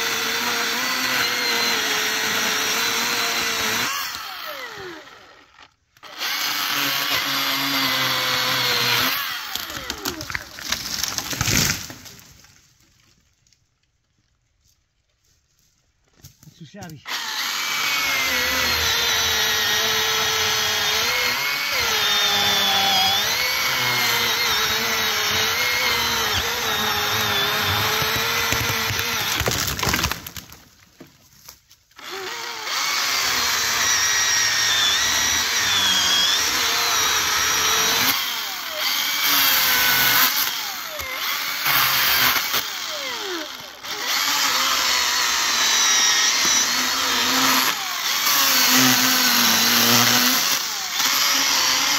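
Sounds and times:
electric chainsaw cutting wood: 0:00.0 - 0:11.9, 0:17.1 - 0:30.6, 0:31.9 - 0:51.9.

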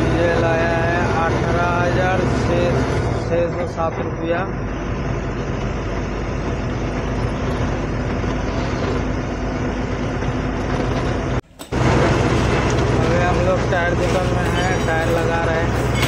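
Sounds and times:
diesel engine idling: 0:00.0 - 0:16.0.

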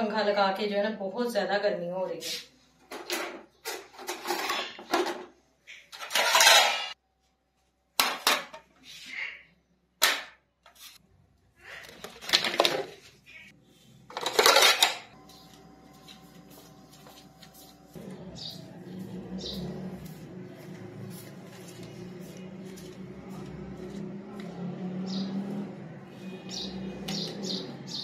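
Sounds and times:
utensils and dishes clattering: 0:02.9 - 0:07.0, 0:14.1 - 0:15.2.

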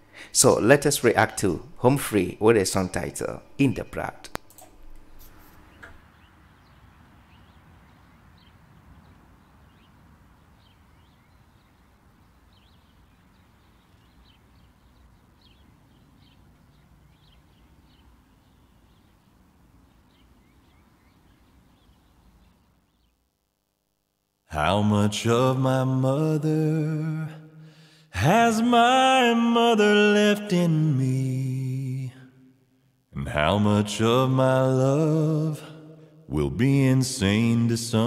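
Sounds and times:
birds chirping: 0:00.0 - 0:23.3.

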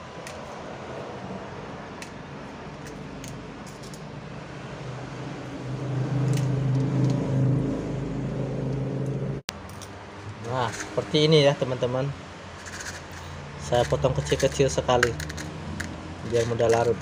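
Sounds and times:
engine-like hum: 0:00.0 - 0:17.0.

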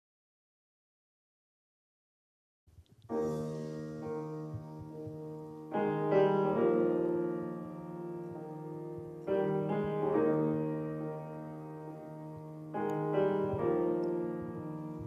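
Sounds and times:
grand piano chords: 0:03.0 - 0:15.0.

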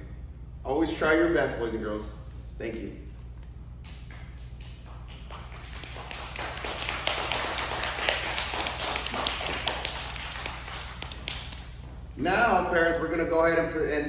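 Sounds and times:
audience applauding: 0:05.1 - 0:11.4.

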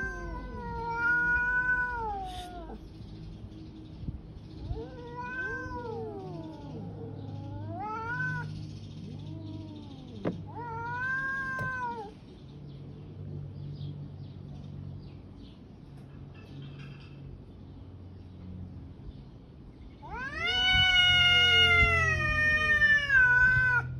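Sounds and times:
cats yowling: 0:00.0 - 0:02.9, 0:04.6 - 0:12.2, 0:20.0 - 0:23.9.

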